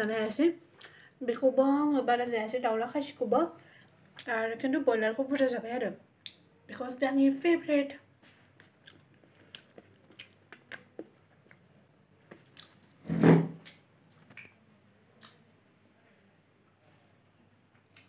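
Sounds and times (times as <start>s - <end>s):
person chewing: 0.0s - 1.0s, 8.2s - 13.0s, 13.6s - 15.4s
loud thump: 13.1s - 13.6s.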